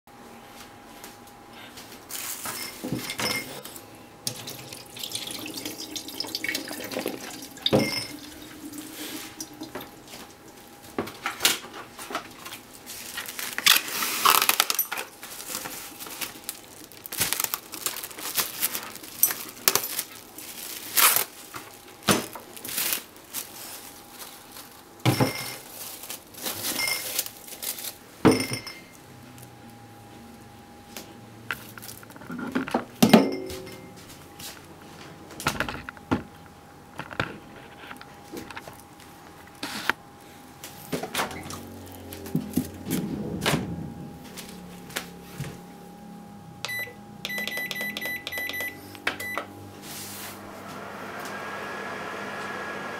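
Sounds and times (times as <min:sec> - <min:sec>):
water pouring and splashing: 0:04.3 - 0:10.7
cling film crinkling: 0:09.0 - 0:24.9.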